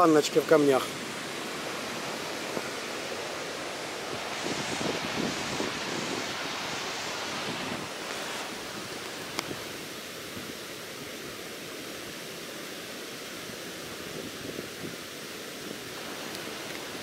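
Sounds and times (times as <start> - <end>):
waterfall roaring onto rocks: 0.0 - 17.0.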